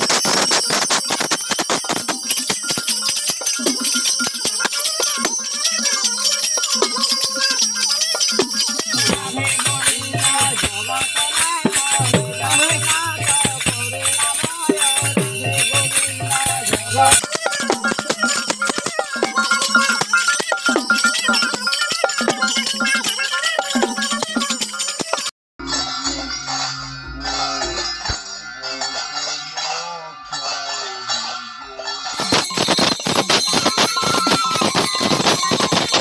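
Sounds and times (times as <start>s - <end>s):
jingle clapper: 0.0s - 25.3s, 32.1s - 36.0s
small hand cymbals jingling: 0.0s - 25.3s, 32.1s - 36.0s
barrel drum: 8.4s - 22.9s
group chanting a devotional song: 8.8s - 17.9s, 26.0s - 32.8s.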